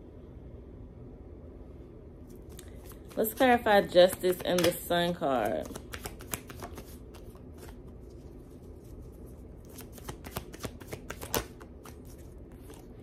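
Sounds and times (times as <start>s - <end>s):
cards being shuffled: 2.3s - 13.0s
card snap: 4.0s - 4.8s, 9.8s - 11.6s.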